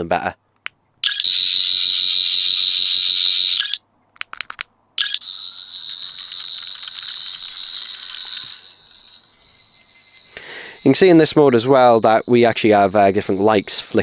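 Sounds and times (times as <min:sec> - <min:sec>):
electronic toy whirring: 0:05.0 - 0:10.2.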